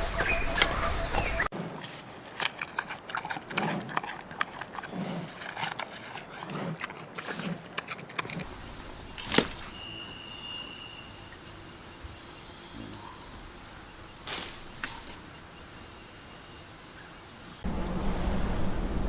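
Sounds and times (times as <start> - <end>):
leaves crackling and rustling: 0.0 - 2.4, 8.4 - 10.6, 12.8 - 15.6
gorilla chewing: 1.7 - 8.6.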